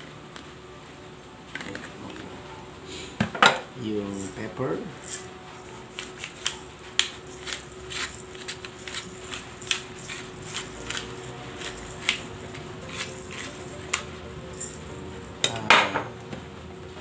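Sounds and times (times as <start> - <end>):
faint steady hum: 0.0 - 17.0
pepper mill grinding: 4.1 - 15.7.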